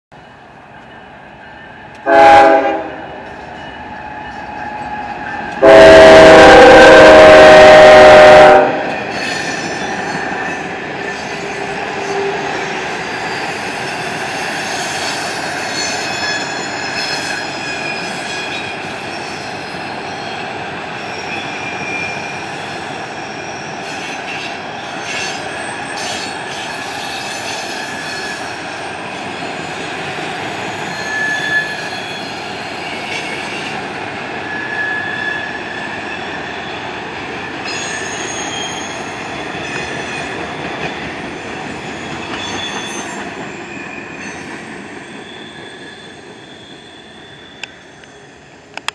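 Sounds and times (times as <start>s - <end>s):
train cars rumbling past: 0.1s - 48.8s
locomotive air horn blast: 2.0s - 3.0s, 5.6s - 8.9s
high wheel squeals: 9.0s - 33.8s, 34.4s - 36.8s, 37.6s - 40.4s, 41.4s - 48.4s.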